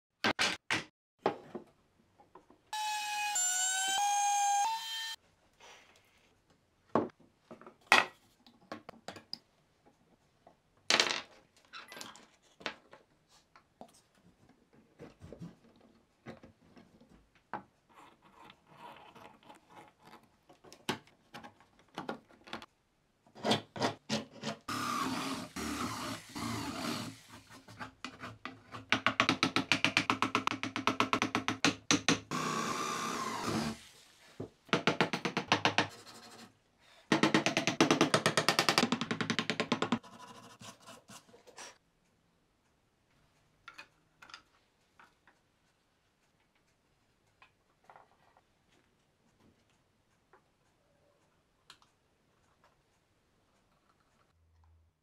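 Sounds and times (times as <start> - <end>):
brief squealing tone: 2.8 - 5.2
chisel scraping wood: 23.4 - 28.9.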